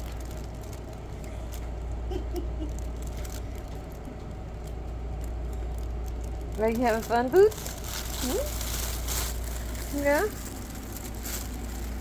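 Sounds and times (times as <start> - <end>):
steady low hum: 0.0 - 12.0
cat rustling on fabric: 7.0 - 12.0.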